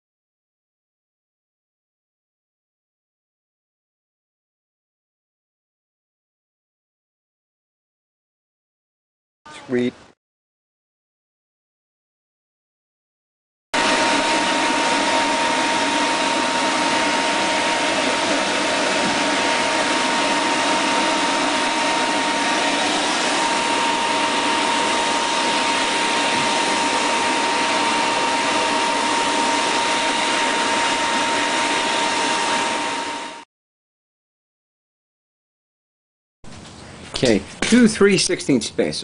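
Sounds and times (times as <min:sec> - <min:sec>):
electric fan running: 0:13.8 - 0:33.5.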